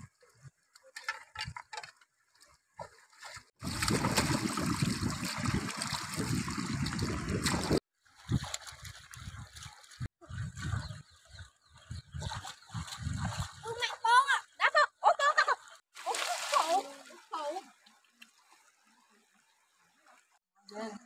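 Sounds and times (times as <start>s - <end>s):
water splashing by hand: 2.4s - 10.9s, 16.0s - 17.6s.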